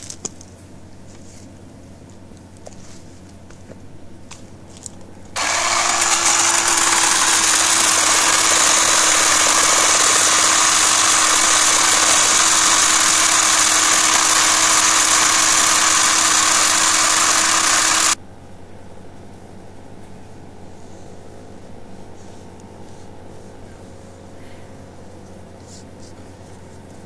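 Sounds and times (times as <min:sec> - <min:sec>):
chainsaw cutting tree trunk: 0:05.4 - 0:18.2.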